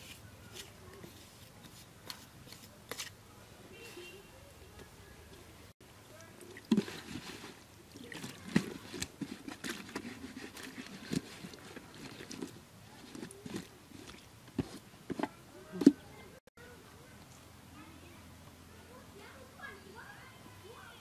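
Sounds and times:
water glugging and splashing: 0:06.2 - 0:16.2.

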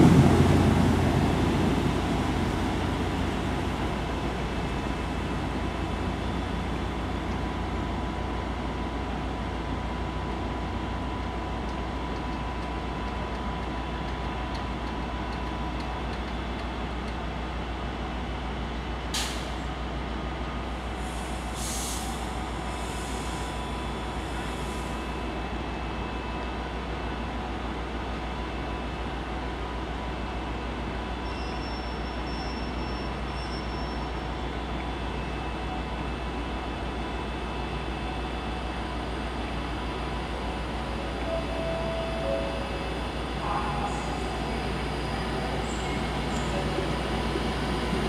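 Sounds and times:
diesel train engine rumble: 0:00.0 - 0:48.0
air hiss: 0:21.0 - 0:23.4.

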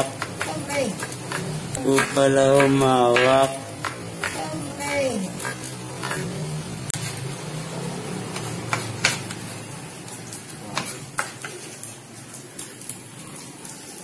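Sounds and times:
knife tapping cutting board: 0:00.2 - 0:04.5.

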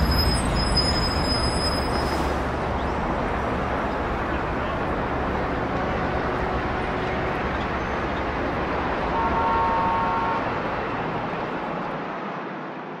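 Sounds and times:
city traffic rushing: 0:00.0 - 0:13.0
car horn: 0:09.1 - 0:10.6.

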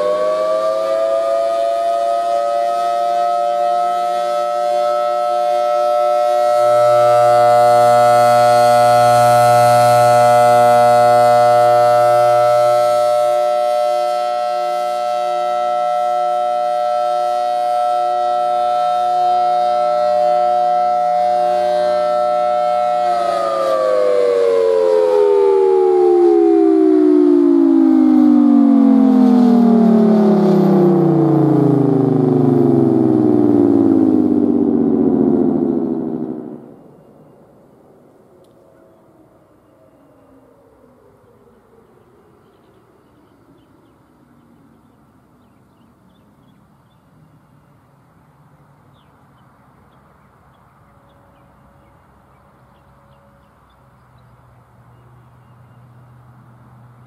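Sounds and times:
tornado siren alert tone: 0:00.0 - 0:37.6
low hum: 0:04.4 - 0:44.5.

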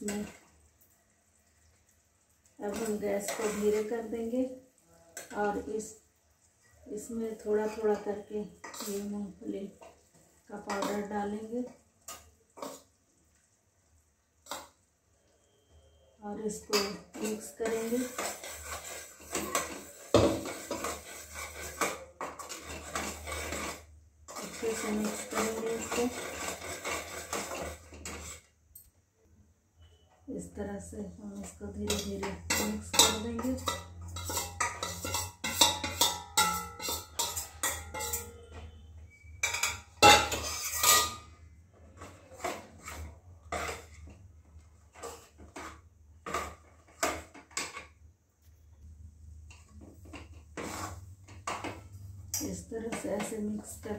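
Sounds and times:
metal spatula scraping in a pan: 0:00.0 - 0:00.5, 0:02.6 - 0:04.3, 0:05.1 - 0:06.0, 0:06.6 - 0:13.0, 0:14.4 - 0:28.5, 0:31.3 - 0:48.0, 0:49.5 - 0:53.9.

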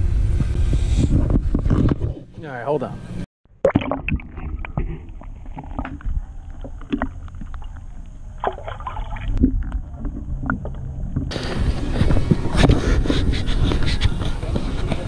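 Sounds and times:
boat engine low rumble: 0:05.0 - 0:15.0.

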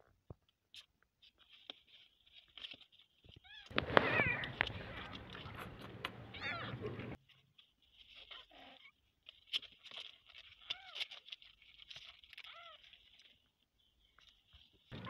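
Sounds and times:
rustling: 0:00.8 - 0:15.0
kittens mewing: 0:03.7 - 0:07.2.

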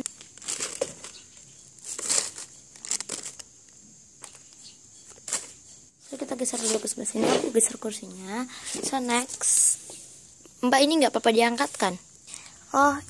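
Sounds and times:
plastic bag crinkling: 0:00.0 - 0:03.5.

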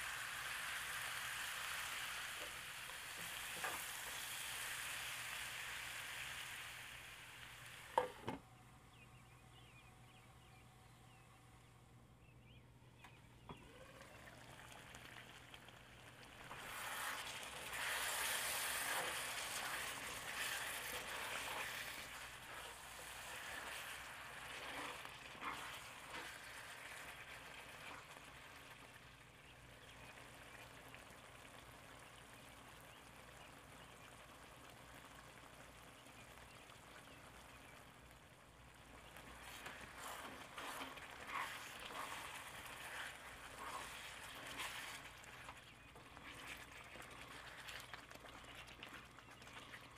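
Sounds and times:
food sizzling in a pan: 0:00.0 - 0:08.2, 0:16.3 - 0:29.0, 0:39.2 - 0:45.4
spatula scraping a pan: 0:16.5 - 0:28.0, 0:39.4 - 0:47.5.

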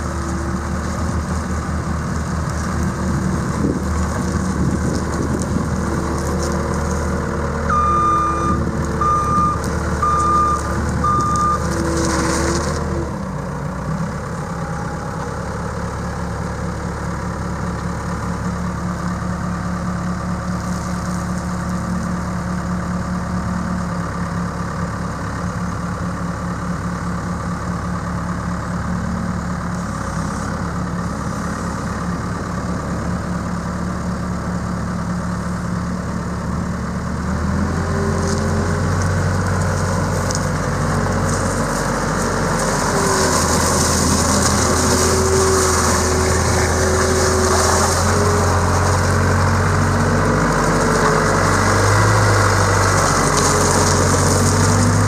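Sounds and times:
diesel engine running: 0:00.0 - 0:55.0
short beeps: 0:07.7 - 0:11.7.

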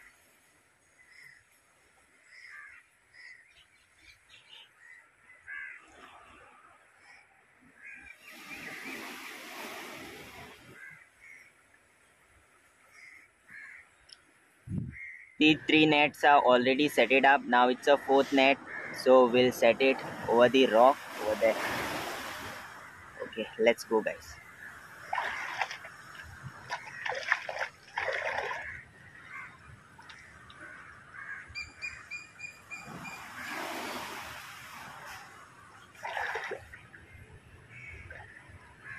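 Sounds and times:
crows cawing: 0:02.3 - 0:03.4, 0:04.8 - 0:05.9, 0:10.8 - 0:11.5, 0:12.9 - 0:13.9, 0:18.6 - 0:19.0, 0:28.3 - 0:32.0
waves splashing against rocks: 0:08.3 - 0:10.8, 0:20.1 - 0:23.4, 0:24.9 - 0:28.8, 0:32.8 - 0:36.8.

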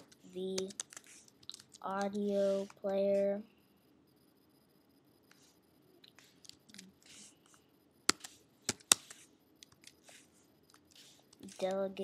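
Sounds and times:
keyboard typing: 0:00.0 - 0:02.9, 0:06.0 - 0:11.9.

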